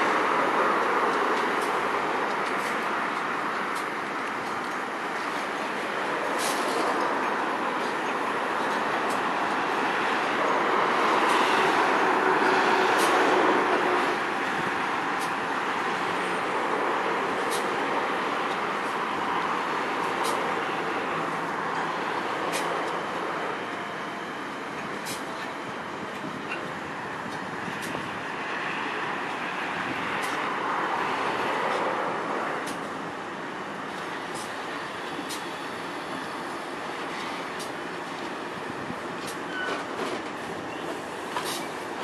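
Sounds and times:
train rumbling: 0.0 - 42.0
brief high squeals: 39.5 - 39.8.

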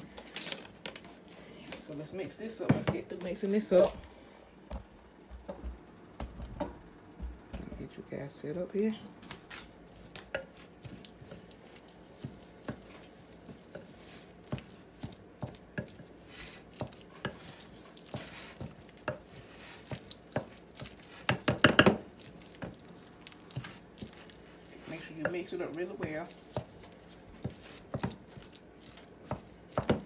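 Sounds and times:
wooden spoon stirring in glass bowl: 9.9 - 30.0.

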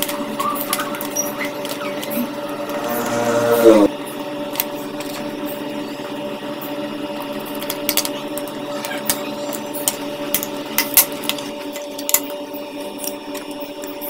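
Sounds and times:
steady hum: 1.6 - 3.9.

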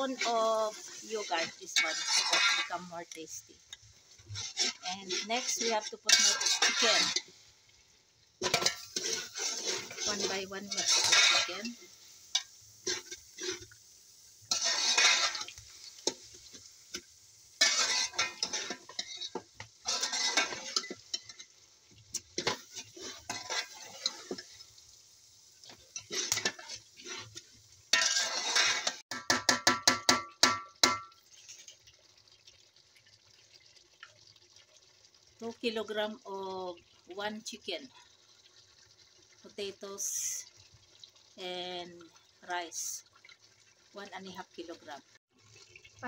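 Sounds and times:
metal utensil scraping steel pot: 0.0 - 7.4, 8.4 - 13.8, 14.5 - 17.0, 17.6 - 21.5, 22.1 - 24.6, 25.9 - 31.8
faint sizzling hiss: 0.0 - 29.0.

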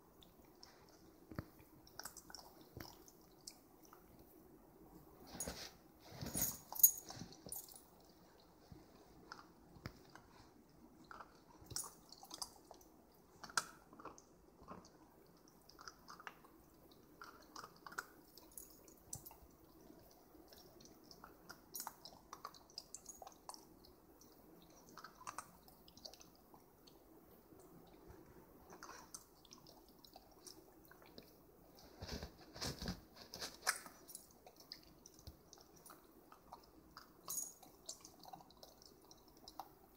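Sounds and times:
puppy licking and chewing ice: 0.1 - 5.6, 6.2 - 39.9.

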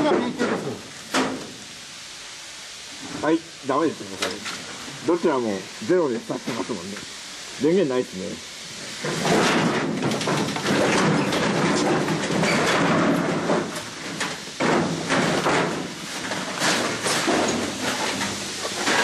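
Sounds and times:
footsteps over loose debris: 9.0 - 19.0.

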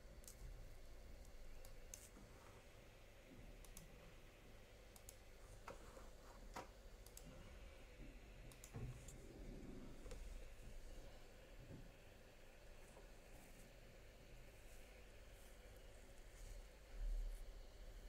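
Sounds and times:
computer keyboard clicks: 8.5 - 9.2.

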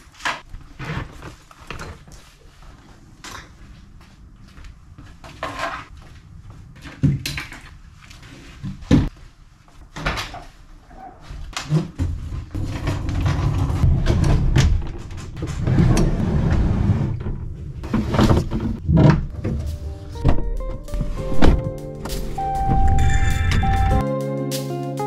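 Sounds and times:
gear knocks and clunks: 11.5 - 21.7
rumbling scrape: 12.4 - 21.6.

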